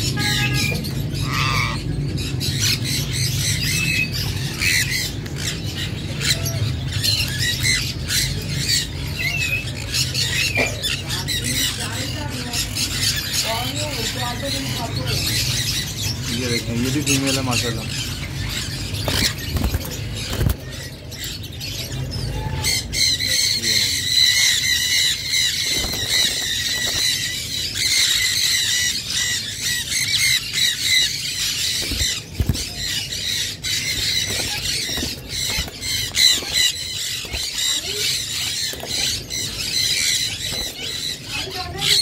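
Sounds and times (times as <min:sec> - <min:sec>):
parakeets screeching: 0:00.0 - 0:42.0
wing flaps: 0:25.6 - 0:27.2.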